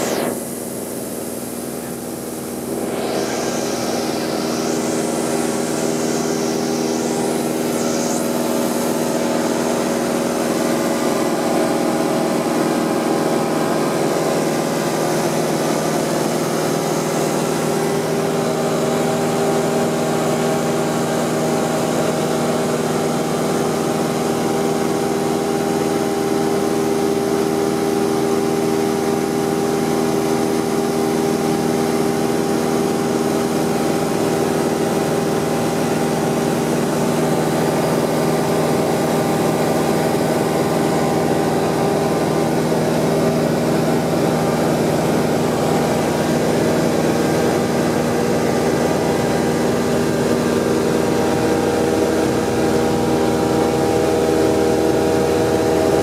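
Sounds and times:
rushing air hiss: 0:00.0 - 0:19.1
propeller plane engine droning: 0:00.0 - 0:56.0.

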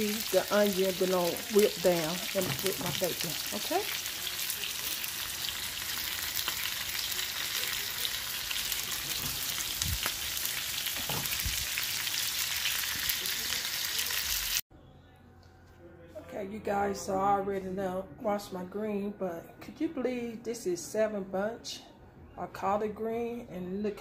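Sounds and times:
onions and bacon sizzling: 0:00.0 - 0:14.6.

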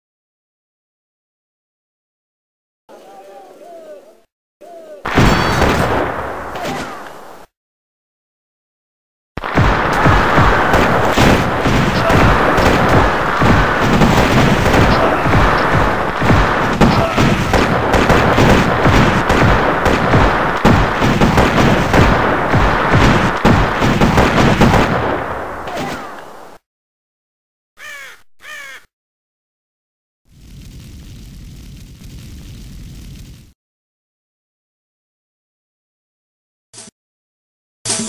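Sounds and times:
noise of fighting: 0:02.9 - 0:07.5, 0:09.4 - 0:26.6
dense gunfire: 0:05.1 - 0:06.6, 0:09.4 - 0:25.7
crow cawing: 0:27.8 - 0:28.9.

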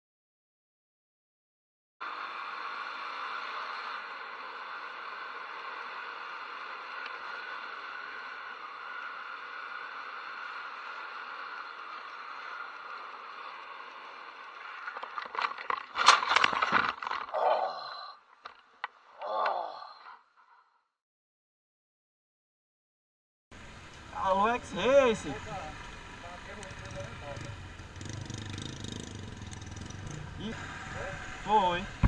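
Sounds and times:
motorcycle crash knocks and scraping: 0:15.1 - 0:17.3
motorcycle engine: 0:23.6 - 0:32.0.

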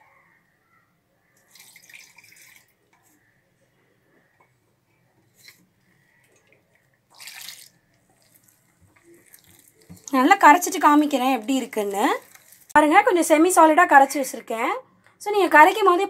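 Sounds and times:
wet swishes and splashes: 0:07.1 - 0:10.1.

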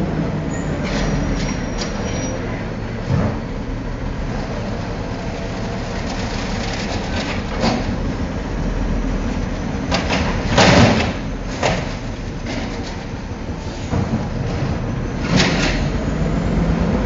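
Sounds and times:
garbage truck running: 0:00.0 - 0:17.0
bangs and clatter of trash cart: 0:05.8 - 0:08.0, 0:09.9 - 0:16.0.

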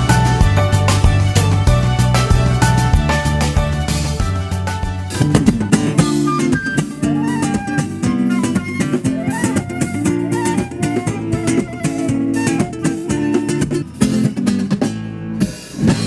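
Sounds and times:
live band playing: 0:00.0 - 0:16.0
flute melody: 0:05.9 - 0:14.3.

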